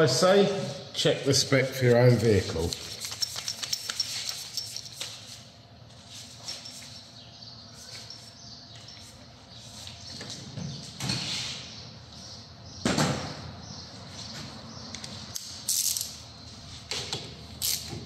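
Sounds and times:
tools being handled: 2.4s - 7.1s, 15.0s - 16.2s, 16.9s - 18.0s
tools clattering: 2.6s - 5.4s.

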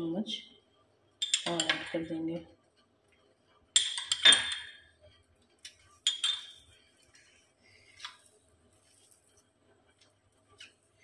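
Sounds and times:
metal kitchenware clinking: 3.8s - 4.9s, 5.9s - 6.8s.

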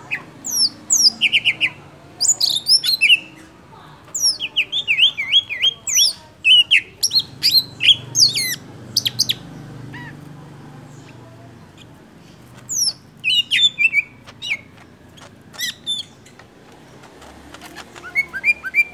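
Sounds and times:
bird chirping and whistling: 0.1s - 3.3s, 4.2s - 9.4s, 12.7s - 14.6s, 18.0s - 18.9s.

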